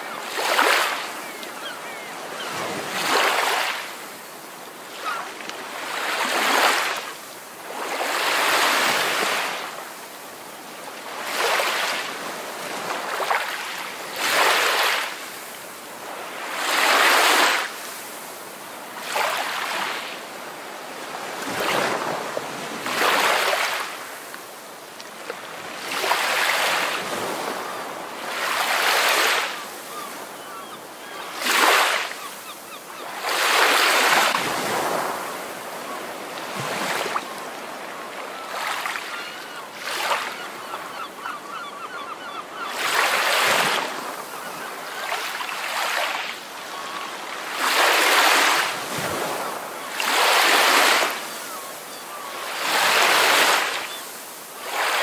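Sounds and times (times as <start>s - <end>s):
ocean waves breaking: 0.0s - 9.8s, 21.0s - 24.4s, 25.4s - 30.4s, 31.2s - 41.0s, 42.7s - 55.0s.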